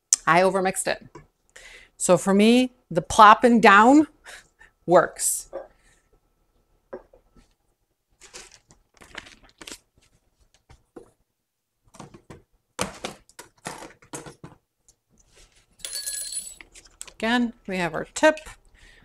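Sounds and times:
plastic bag crinkling and rustling: 8.1s - 10.6s.

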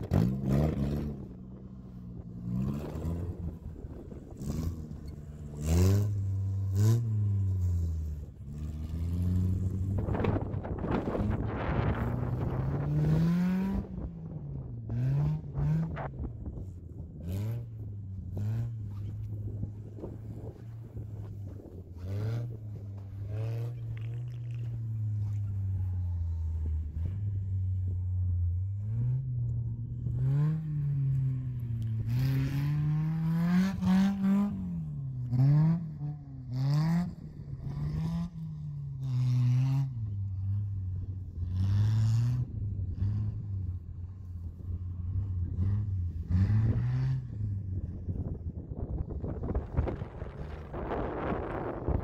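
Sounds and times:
car engine revving: 0.0s - 48.4s.

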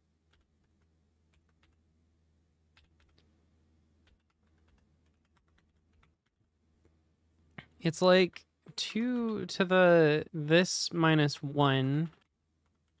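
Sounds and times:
typing on computer keyboard: 2.8s - 3.2s, 4.0s - 6.4s.

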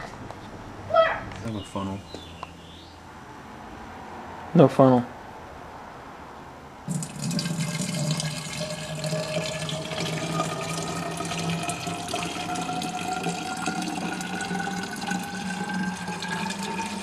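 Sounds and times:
water pouring into container: 6.9s - 17.0s.

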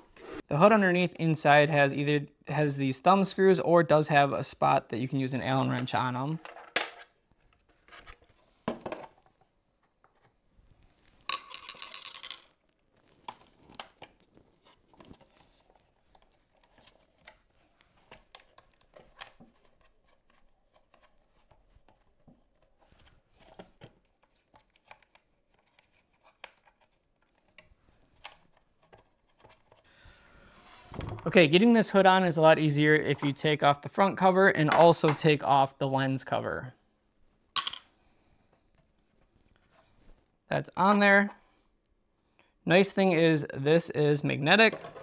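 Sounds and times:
plastic parts clicking and knocking: 5.8s - 10.4s, 11.2s - 22.8s, 44.7s - 45.0s.

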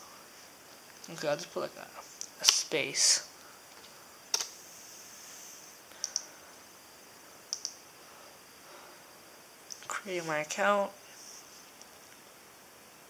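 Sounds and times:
keyboard key clicks: 6.0s - 6.3s, 7.5s - 7.8s.

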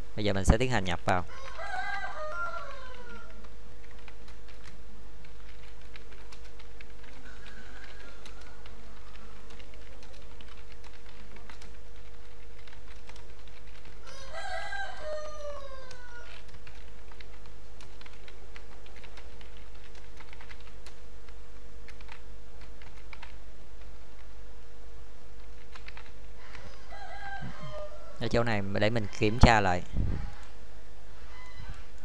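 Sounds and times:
rooster crowing: 1.3s - 3.5s, 7.2s - 9.5s, 14.0s - 16.5s, 26.4s - 30.6s, 31.2s - 32.0s
computer keyboard typing: 1.4s - 24.3s, 25.4s - 26.8s.

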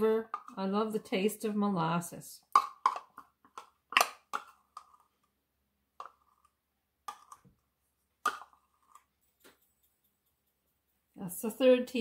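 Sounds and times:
metal spoon tapping containers: 0.2s - 1.0s, 2.5s - 5.0s, 6.0s - 7.5s, 8.2s - 10.8s.

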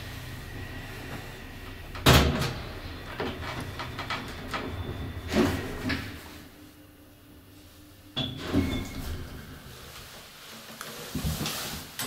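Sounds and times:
elevator hum: 0.0s - 10.7s
metal clanks and clicks: 1.9s - 6.2s.

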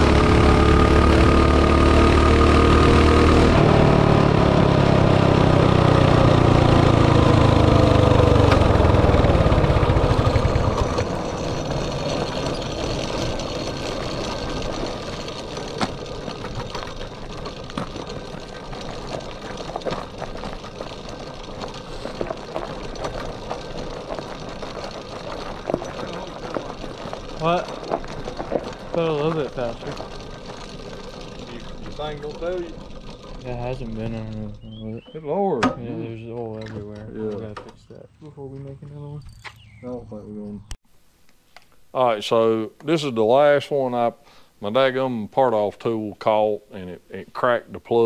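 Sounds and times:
ticking of rolling bike: 0.0s - 35.6s
small motorbike engine running: 0.0s - 37.8s.

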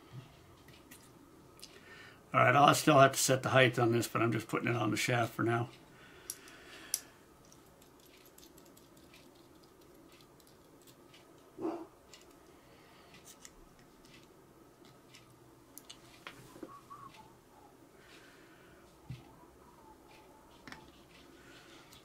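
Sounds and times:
small parts clicking and tapping: 6.2s - 11.5s, 12.1s - 16.0s.

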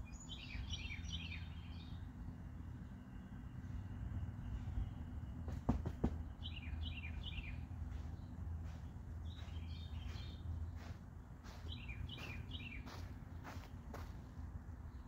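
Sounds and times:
low outdoor hum: 0.0s - 15.0s
songbird chirping: 0.0s - 15.0s.

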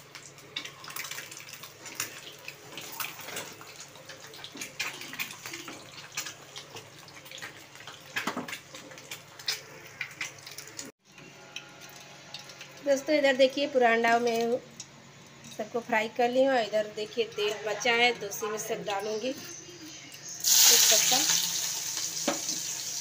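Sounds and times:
eggs frying in oil: 0.0s - 15.6s, 20.4s - 23.0s.

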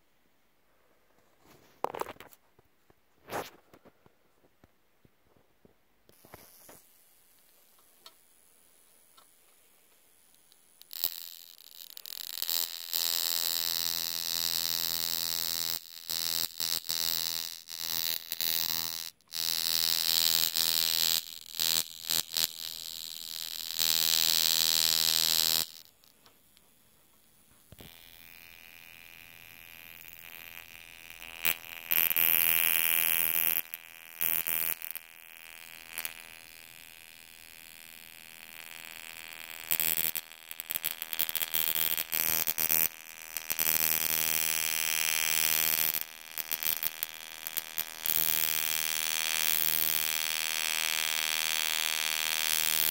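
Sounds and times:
electric arc crackling: 6.1s - 9.5s, 10.1s - 52.9s
high-voltage generator buzzing: 10.8s - 26.1s, 27.6s - 52.9s.

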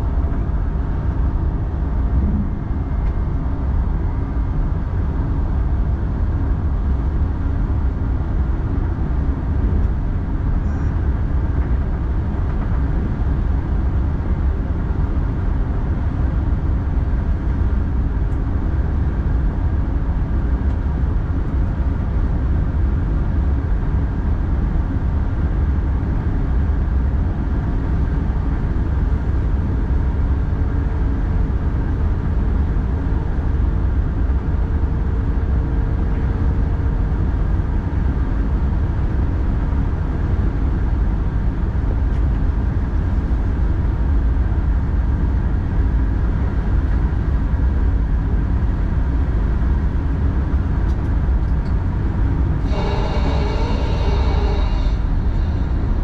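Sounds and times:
train rumbling: 0.0s - 56.0s
faint steady tone: 52.6s - 56.0s.

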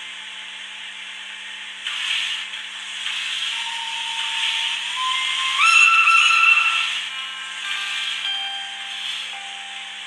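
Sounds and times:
steam hiss from small speaker: 1.7s - 10.0s.

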